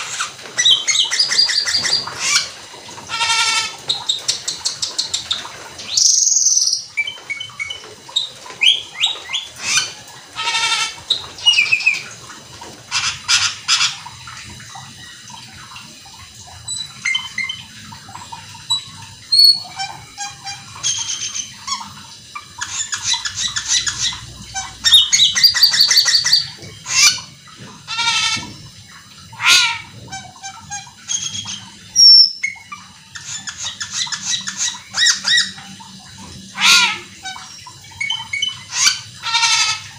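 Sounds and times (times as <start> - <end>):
starling singing: 22.6 - 27.2.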